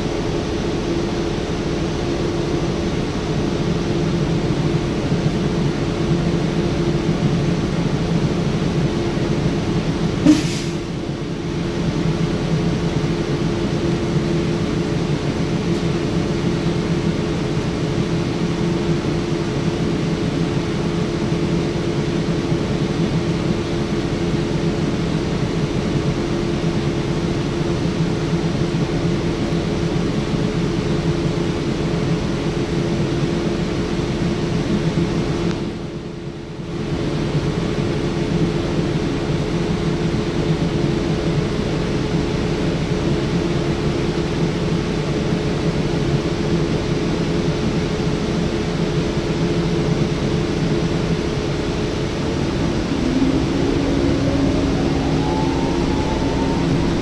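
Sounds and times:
bus drivetrain drone: 50.1s - 57.0s
road noise: 51.4s - 57.0s.

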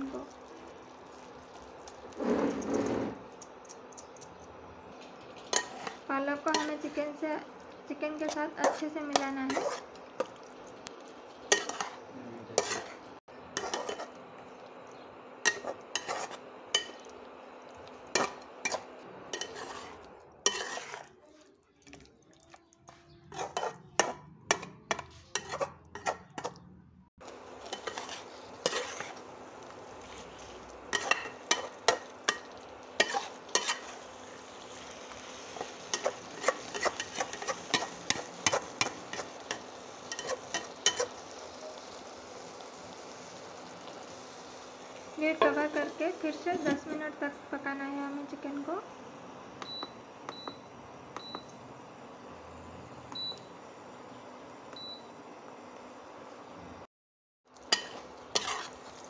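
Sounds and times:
spatula clacking and scraping pan: 1.5s - 7.2s, 8.0s - 12.0s, 12.6s - 14.2s, 15.4s - 17.2s, 18.1s - 21.2s, 22.9s - 26.6s, 27.6s - 41.3s, 45.3s - 47.2s, 57.6s - 59.0s.

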